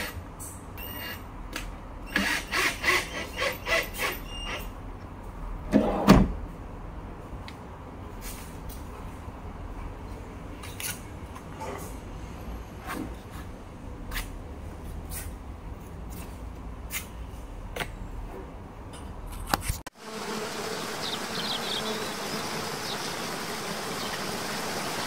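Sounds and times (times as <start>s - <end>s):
waterfall rushing: 20.6s - 25.0s.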